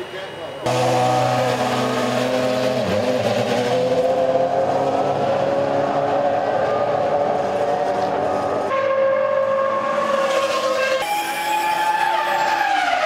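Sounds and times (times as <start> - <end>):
racing car engine pulling away: 0.7 - 8.7.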